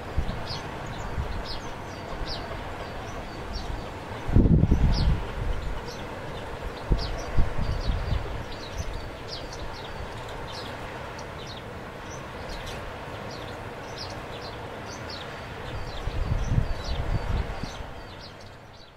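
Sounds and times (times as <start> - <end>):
wind rumbling on microphone: 0.0 - 10.6, 15.7 - 18.6
steady outdoor hiss: 0.0 - 18.9
small birds chirping: 0.2 - 4.2, 4.8 - 18.9.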